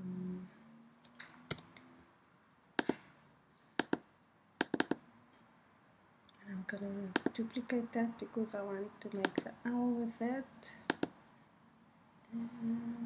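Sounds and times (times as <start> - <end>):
mouse and keyboard clicks: 3.6 - 4.0, 4.6 - 5.0, 7.1 - 7.4, 9.1 - 9.5, 10.9 - 11.2.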